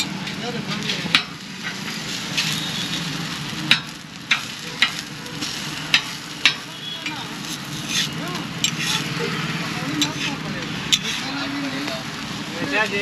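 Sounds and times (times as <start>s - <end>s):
metal spatula clacking on griddle: 0.0s - 2.6s, 3.6s - 9.2s, 9.9s - 11.4s
frying sizzle: 0.0s - 13.0s.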